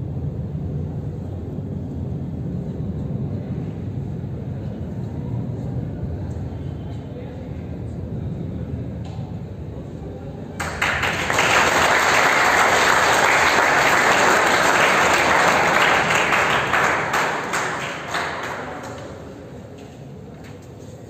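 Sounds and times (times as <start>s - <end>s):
audience applauding: 10.6s - 19.4s.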